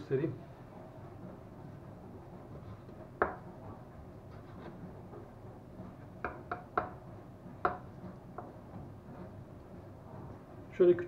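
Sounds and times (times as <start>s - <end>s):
knife knocking on cutting board: 3.2s - 3.4s, 6.2s - 7.0s, 7.6s - 8.5s.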